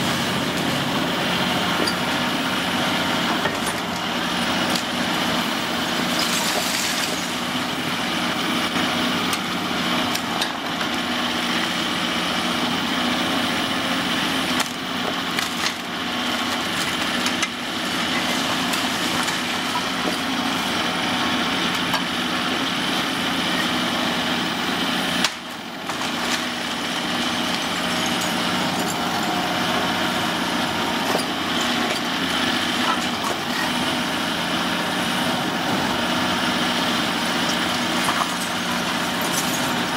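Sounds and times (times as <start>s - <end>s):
excavator diesel engine running: 0.0s - 39.9s
debris cracking and falling: 6.0s - 7.4s
concrete being crushed: 37.8s - 39.9s.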